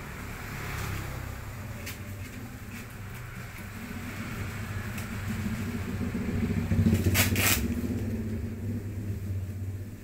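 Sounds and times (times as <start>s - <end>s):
vehicle engine running: 0.0s - 10.0s
paper wrapping rustling: 7.0s - 7.7s.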